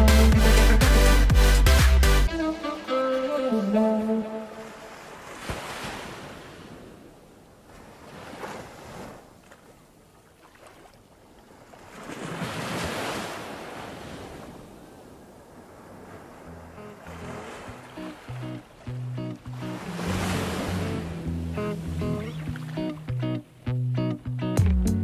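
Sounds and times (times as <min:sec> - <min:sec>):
water washing in shallows: 0:04.5 - 0:23.2.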